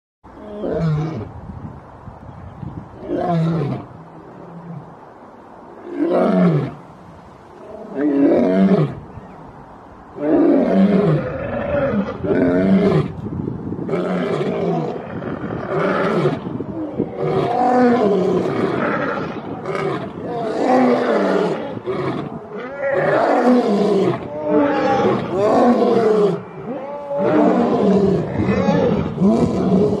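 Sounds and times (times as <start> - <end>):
lions roaring: 17.0 - 30.0.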